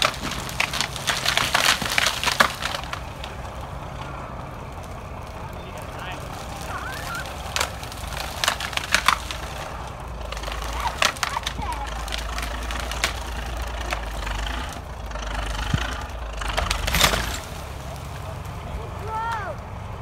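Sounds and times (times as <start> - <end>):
branches crushing: 0.0 - 20.0
bulldozer diesel engine rumble: 0.0 - 20.0
tree cracking and splintering: 0.0 - 20.0.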